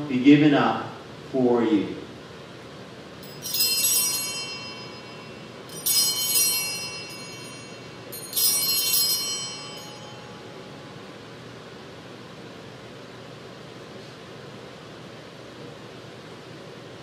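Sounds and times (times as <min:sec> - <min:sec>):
altar bells jingling: 0:03.2 - 0:11.1.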